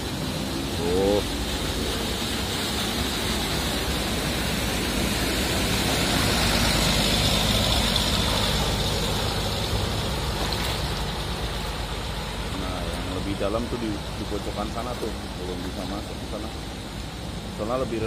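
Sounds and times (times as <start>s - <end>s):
bus engine rumble: 0.0s - 18.0s
water rushing and splashing: 0.0s - 18.0s.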